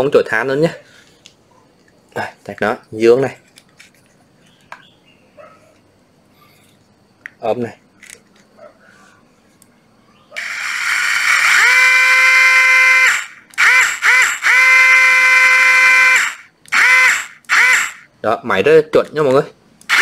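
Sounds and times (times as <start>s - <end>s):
cordless drill motor whine: 10.4s - 18.1s.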